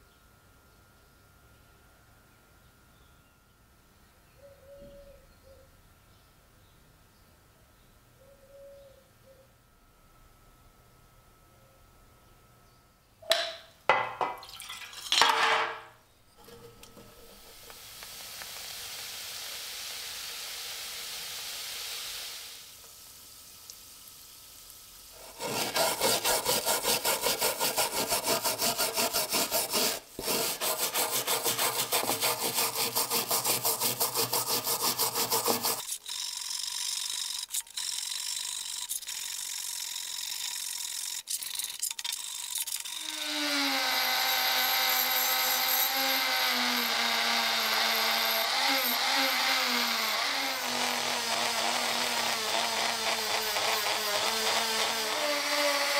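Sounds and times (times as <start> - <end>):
fizzing hiss: 17.3 - 25.4
brush scrubbing wet metal: 25.1 - 36.0.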